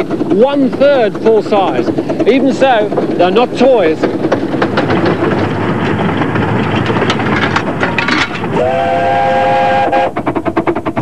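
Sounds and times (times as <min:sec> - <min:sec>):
steam locomotive exhaust beating: 0:00.0 - 0:11.0
train rattling: 0:00.0 - 0:11.0
steam whistle: 0:08.5 - 0:10.2.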